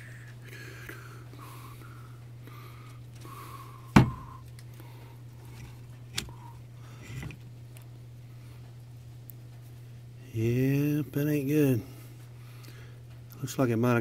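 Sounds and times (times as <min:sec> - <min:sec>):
steady low hum: 0:00.0 - 0:14.0.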